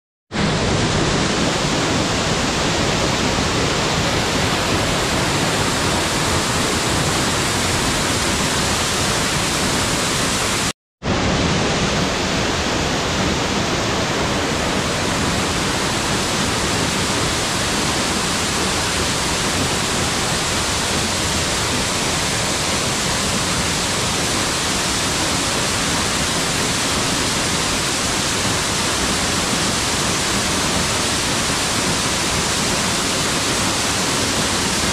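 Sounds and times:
waterfall rushing onto rocks: 0:00.3 - 0:34.9.

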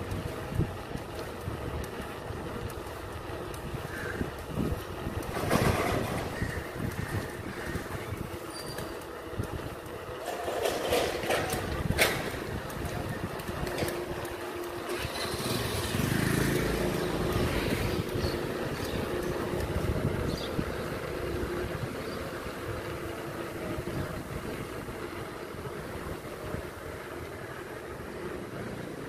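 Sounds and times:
vehicle engine and road noise: 0:00.0 - 0:29.0
wind on microphone: 0:03.6 - 0:09.9, 0:16.8 - 0:23.0.

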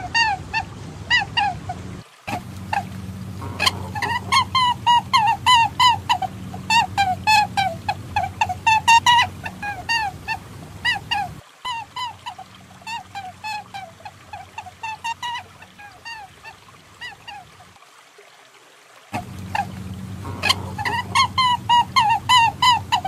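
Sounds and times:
short bird-like calls: 0:00.0 - 0:16.2, 0:19.2 - 0:23.0
background hiss: 0:00.0 - 0:23.0.

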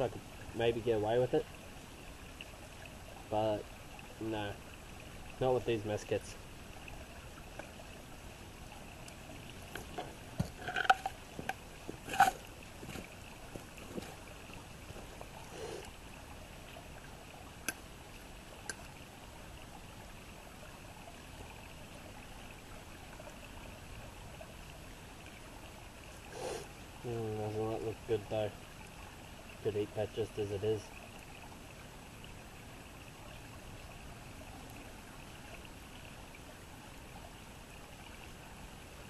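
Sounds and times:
knife scraping metal pot: 0:12.1 - 0:12.4.

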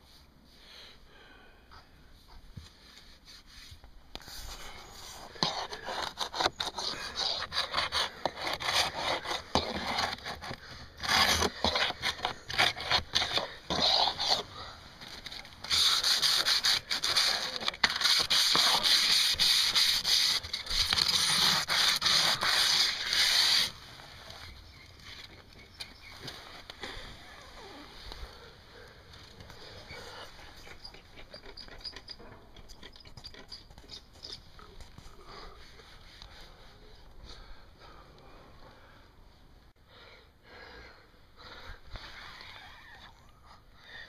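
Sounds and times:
hand sanding wood: 0:15.7 - 0:23.8.

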